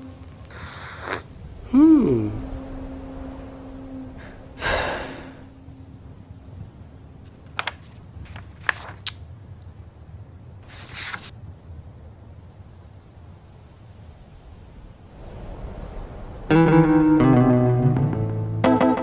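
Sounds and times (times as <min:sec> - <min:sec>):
low hum: 0:00.0 - 0:07.5, 0:11.4 - 0:18.8
breathy rush like a gasp: 0:04.2 - 0:05.5.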